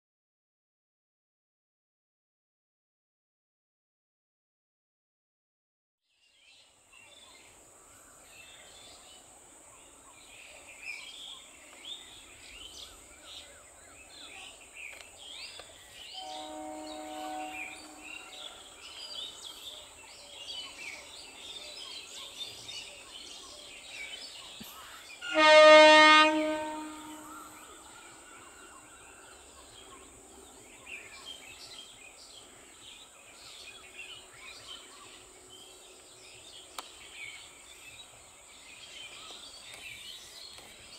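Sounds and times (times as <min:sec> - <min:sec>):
birds chirping: 0:07.1 - 0:40.9
train horn: 0:16.0 - 0:18.8, 0:25.2 - 0:27.8.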